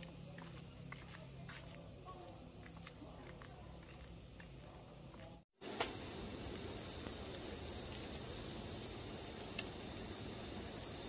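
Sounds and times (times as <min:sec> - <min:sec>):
insect trilling: 0:04.8 - 0:11.0.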